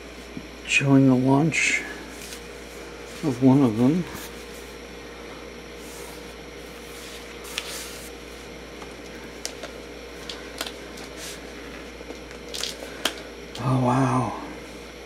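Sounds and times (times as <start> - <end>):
steady low hum: 0.0 - 15.0
paper and book cover rustling: 5.8 - 13.3.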